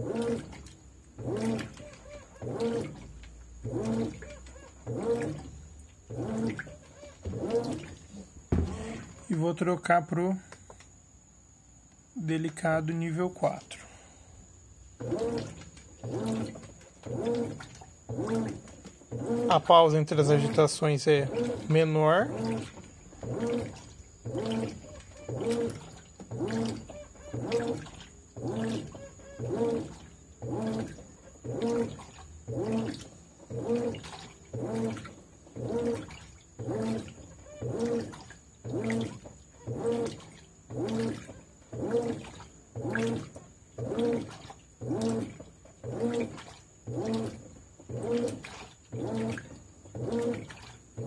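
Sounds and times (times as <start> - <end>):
water sloshing: 0.0 - 9.9, 12.2 - 14.1, 14.7 - 51.0
washing machine agitating: 0.0 - 10.8, 12.2 - 51.0.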